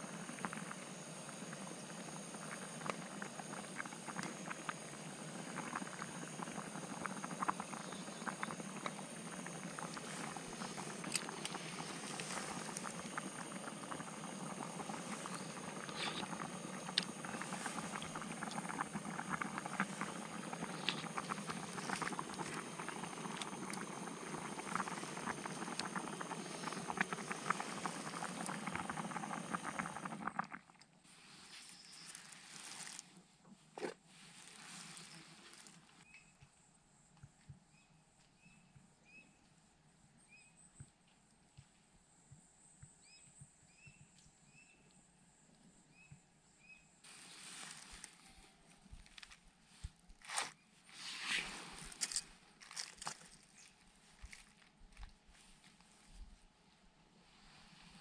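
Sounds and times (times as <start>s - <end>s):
gas burner rushing: 0.0s - 30.4s
soup bubbling and popping: 0.2s - 30.9s.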